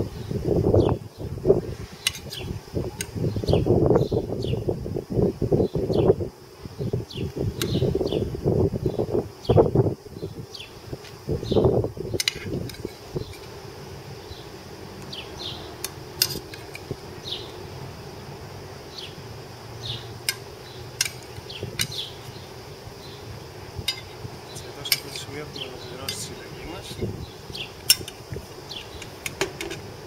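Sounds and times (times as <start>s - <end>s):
insect buzzing: 0.0s - 30.0s
metal spoon scraping frying pan: 16.2s - 16.9s.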